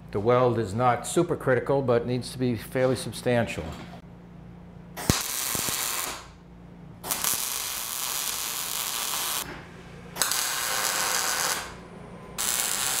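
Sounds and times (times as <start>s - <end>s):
electric arc welding: 5.0s - 6.4s, 7.0s - 9.5s, 10.2s - 11.8s, 12.4s - 13.0s.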